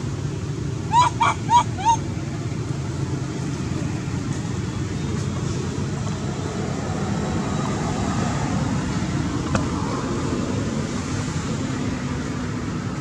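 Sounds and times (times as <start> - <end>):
macaque squeaking: 0.9 - 2.0.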